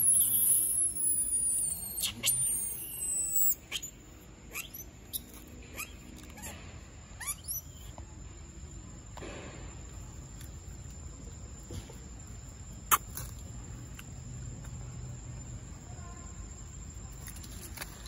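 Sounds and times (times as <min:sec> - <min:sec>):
short rising chirps: 0:00.0 - 0:06.0
wavering high-pitched animal call: 0:00.0 - 0:06.6.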